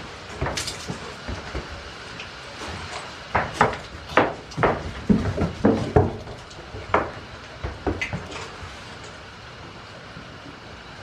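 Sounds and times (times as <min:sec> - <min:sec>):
knocks and thumps on wood: 0:03.3 - 0:08.3.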